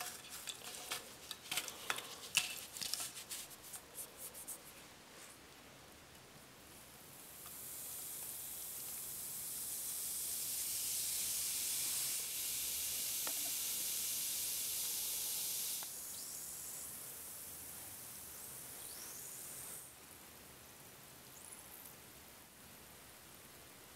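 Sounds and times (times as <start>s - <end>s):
fizzing hiss of foaming liquid: 7.0s - 19.9s.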